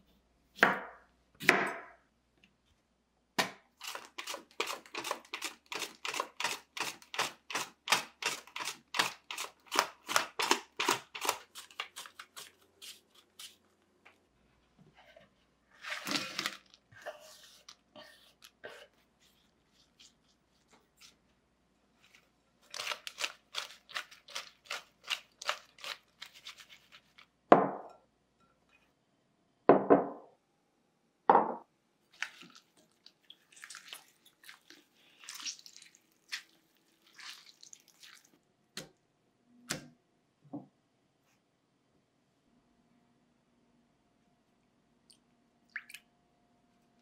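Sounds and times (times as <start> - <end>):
wet squelches and drips: 32.1 - 38.5, 45.0 - 46.1.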